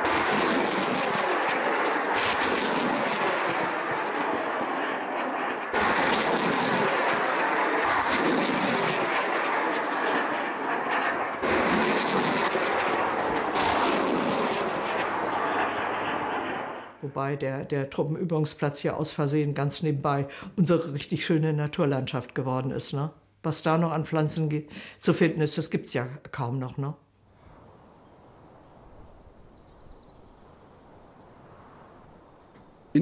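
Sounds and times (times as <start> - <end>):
gunfire blasts: 0.0 - 17.0.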